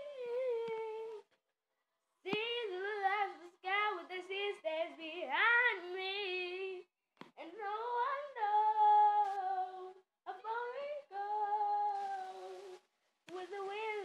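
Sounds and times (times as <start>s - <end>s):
girl singing long notes: 0.0s - 1.3s.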